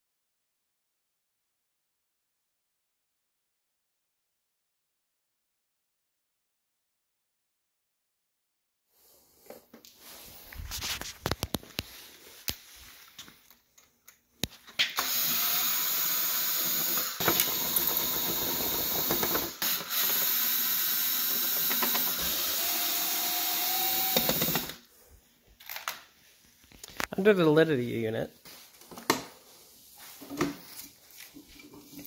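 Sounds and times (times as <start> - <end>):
cordless drill running: 15.0 - 24.8.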